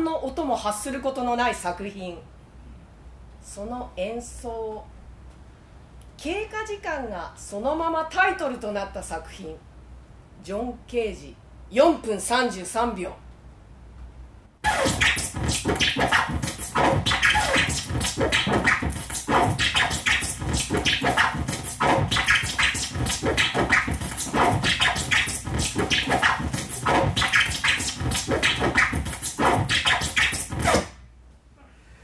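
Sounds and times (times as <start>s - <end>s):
dense scratchy crackling noise: 14.6s - 30.9s.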